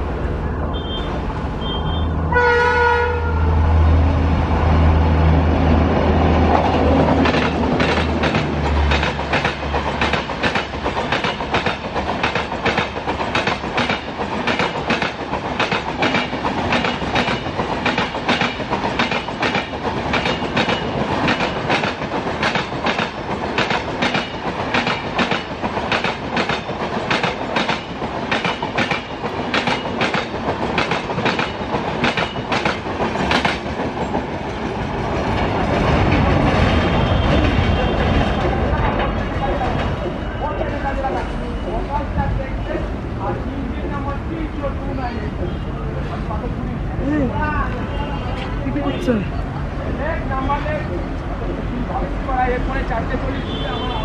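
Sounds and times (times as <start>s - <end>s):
train rushing past: 0.0s - 54.0s
wheels clacking over rail joints: 6.0s - 40.3s.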